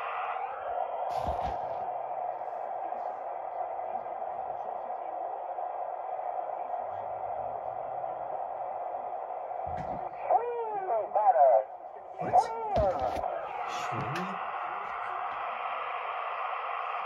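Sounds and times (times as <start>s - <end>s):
radio static hiss: 0.0s - 1.8s, 9.8s - 17.0s.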